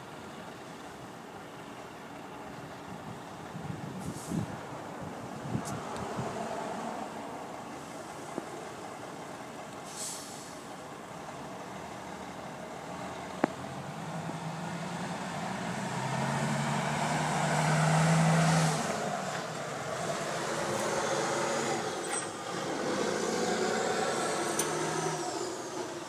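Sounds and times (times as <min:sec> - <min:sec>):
air hiss: 0:09.8 - 0:10.7
truck diesel engine running: 0:18.6 - 0:26.0.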